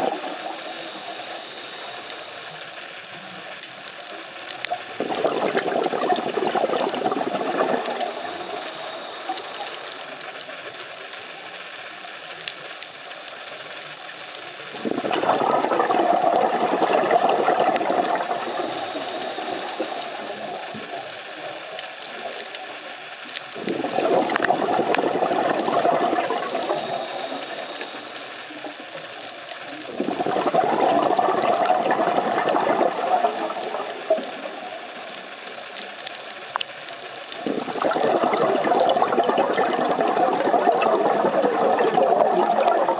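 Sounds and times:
diver exhaling bubbles: 0.0s - 2.0s, 5.0s - 10.0s, 14.7s - 21.2s, 23.6s - 28.8s, 29.9s - 35.2s, 37.4s - 42.9s
faint fine crackling clicks: 0.0s - 42.9s.

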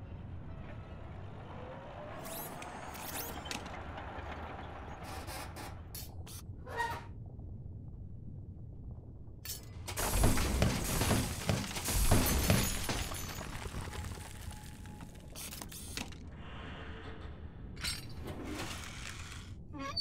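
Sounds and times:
low rumble: 6.4s - 15.4s
tumbling debris: 9.7s - 16.3s
rock breaking with crash: 9.9s - 15.3s.

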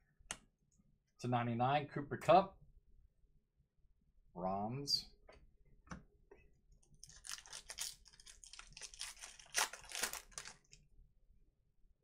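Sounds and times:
wrapper tearing and crinkling: 7.0s - 10.8s.

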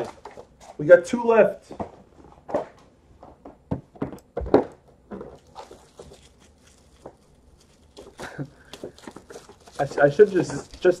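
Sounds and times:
plastic wrap rustling: 4.5s - 11.0s.

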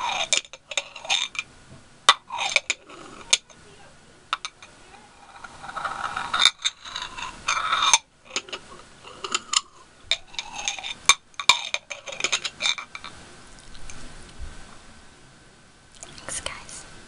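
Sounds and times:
glass jars clinking: 0.0s - 1.5s, 2.1s - 3.6s, 4.3s - 4.7s, 5.3s - 13.1s
glass scraping on glass: 0.0s - 1.5s, 2.1s - 3.6s, 4.3s - 13.2s.

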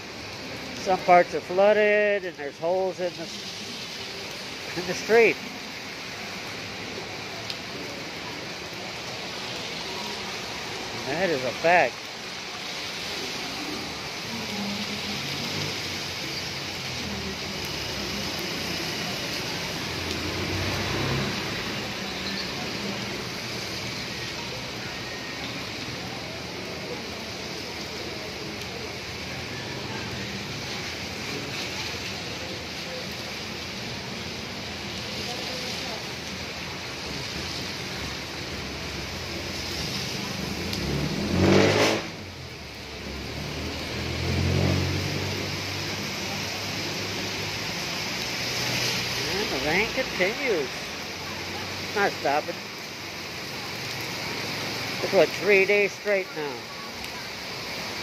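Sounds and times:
heavy rain on wet street: 0.0s - 58.0s
traffic driving through water: 0.0s - 58.0s
vehicle engine rumbling past: 16.8s - 24.6s, 36.9s - 50.1s.

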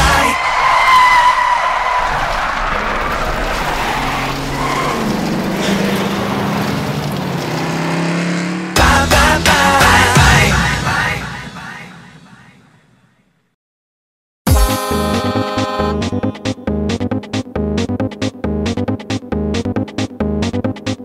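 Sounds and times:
pop music: 0.0s - 0.4s, 8.8s - 11.9s, 14.5s - 16.9s
tyre squeal: 0.2s - 6.5s.

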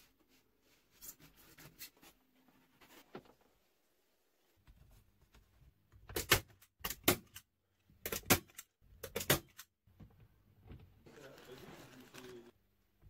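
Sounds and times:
fabric rustling: 11.1s - 12.6s.

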